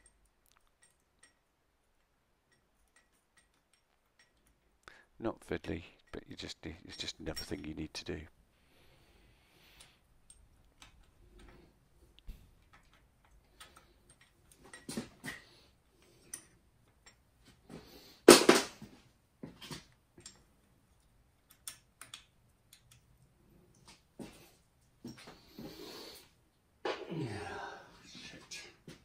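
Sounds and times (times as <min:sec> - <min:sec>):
metallic clicks of hand tools: 0:00.0 - 0:04.6, 0:12.6 - 0:17.2, 0:19.9 - 0:23.8.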